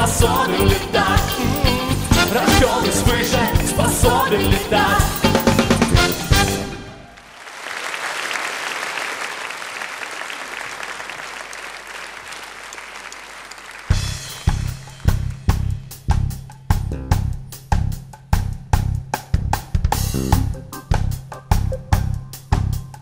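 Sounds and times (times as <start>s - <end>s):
drum kit beat: 0.0s - 6.6s, 13.9s - 23.0s
audience applauding: 6.3s - 15.5s.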